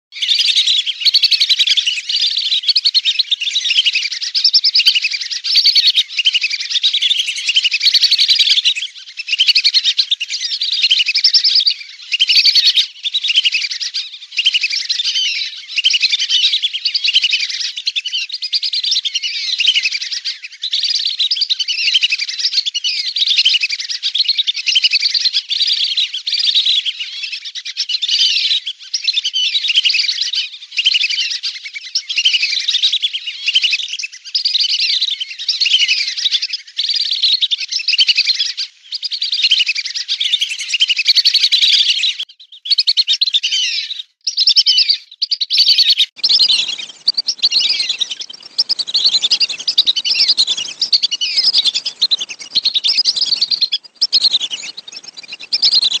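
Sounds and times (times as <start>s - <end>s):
whistling ducks calling: 0.2s - 17.6s, 37.8s - 56.0s.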